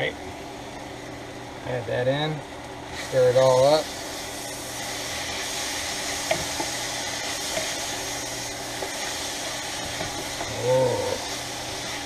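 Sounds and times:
noodles sizzling in a pan: 2.4 - 12.0.

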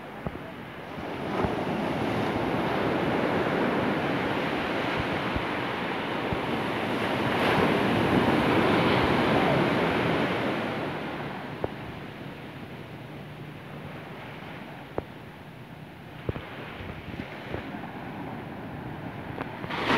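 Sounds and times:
ocean surf washing up beach: 0.0 - 19.9.

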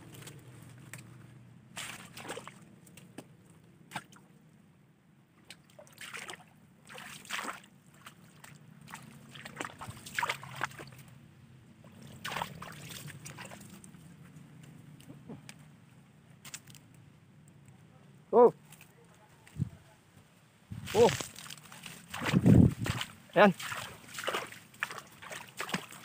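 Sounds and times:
low steady rumble: 0.0 - 5.5, 7.6 - 18.3, 19.3 - 25.3
water sloshing and splashing: 0.1 - 4.4, 5.4 - 14.8, 20.8 - 26.0.

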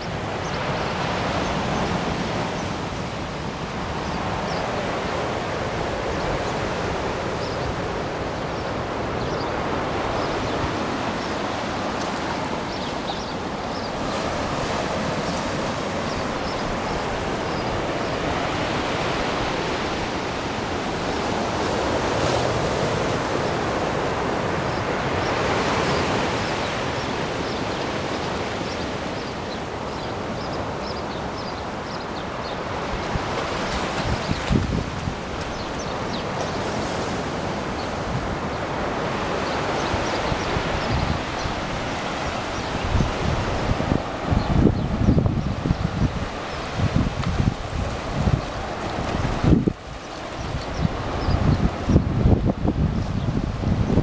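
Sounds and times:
waves breaking on a beach: 0.0 - 54.0.

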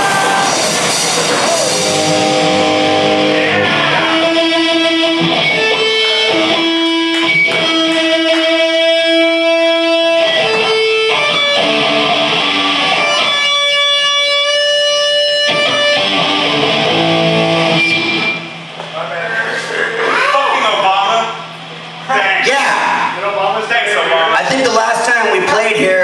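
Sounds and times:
electric guitar chords ringing: 0.0 - 18.8.

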